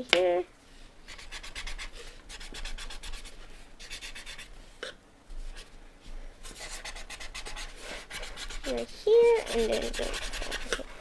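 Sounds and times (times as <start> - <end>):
pencil shading on paper: 1.1 - 4.5, 6.4 - 11.0.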